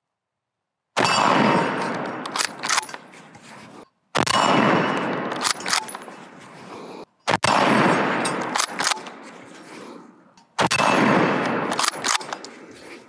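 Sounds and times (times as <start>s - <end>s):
rifle shots: 1.0s - 13.0s
rumble after gunshot: 4.2s - 10.0s, 10.6s - 12.7s.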